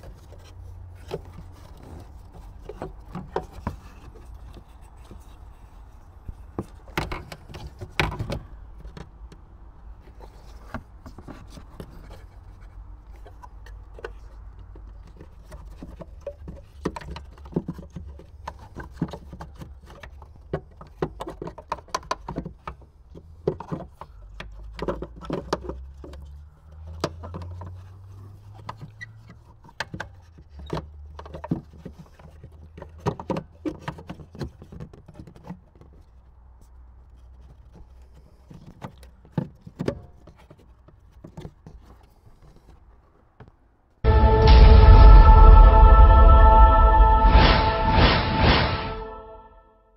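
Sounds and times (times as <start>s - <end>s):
low steady rumble: 44.0s - 49.4s.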